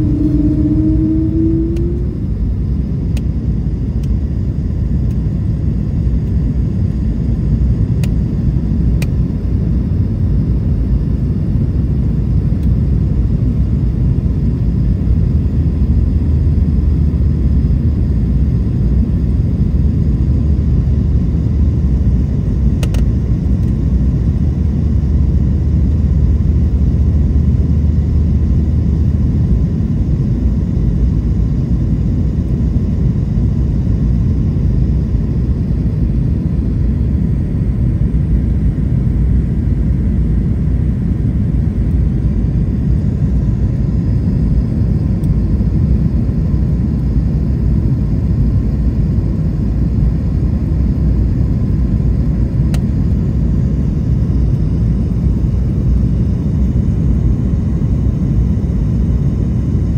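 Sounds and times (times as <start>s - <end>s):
airliner cabin engine rumble: 0.0s - 59.9s
faint click: 22.8s - 23.8s.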